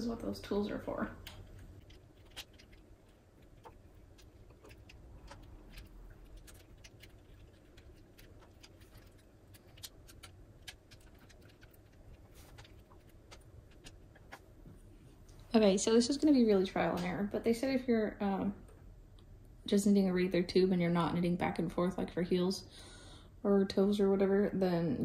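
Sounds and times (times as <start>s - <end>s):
knitting machine needles clicking: 1.2s - 14.5s.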